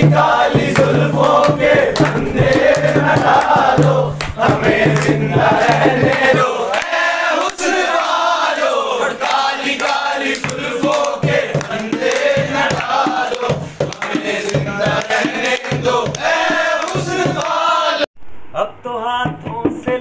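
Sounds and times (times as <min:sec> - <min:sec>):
hand drum beating: 0:00.0 - 0:06.4, 0:10.4 - 0:17.5
men singing in chorus: 0:00.0 - 0:18.1
people clapping: 0:00.0 - 0:18.1.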